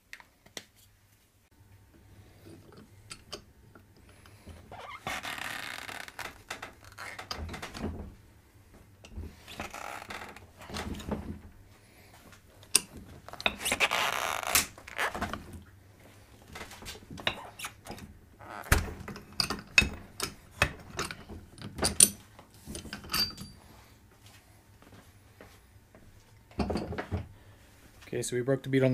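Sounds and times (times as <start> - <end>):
bead breaker creaking and scraping: 4.8 - 7.4, 13.3 - 15.4.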